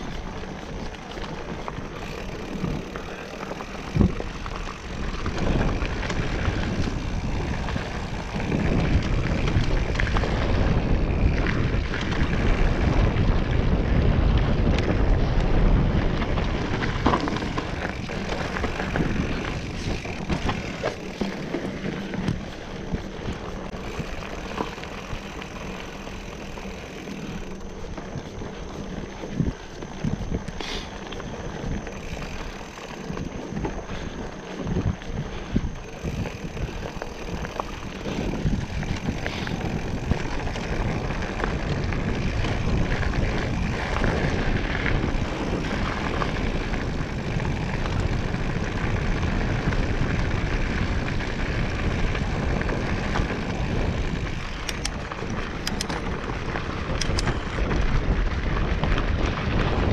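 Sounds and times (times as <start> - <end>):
wind rumbling on microphone: 0.0 - 59.9.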